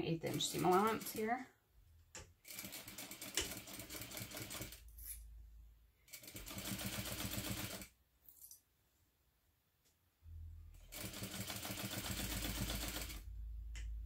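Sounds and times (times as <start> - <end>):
sewing machine stitching: 0.1 - 1.3, 6.1 - 7.9, 10.8 - 13.2.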